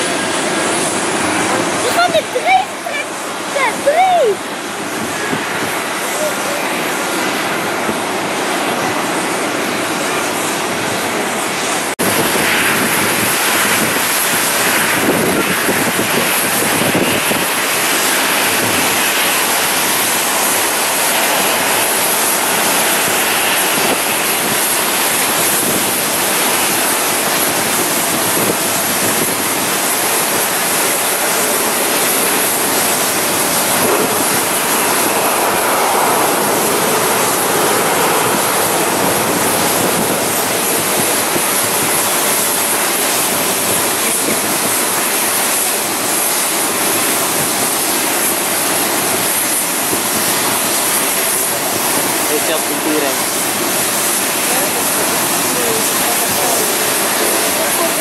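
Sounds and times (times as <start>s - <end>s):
jet engines roaring: 0.0s - 58.0s
wind noise on microphone: 4.0s - 6.0s, 10.2s - 52.8s.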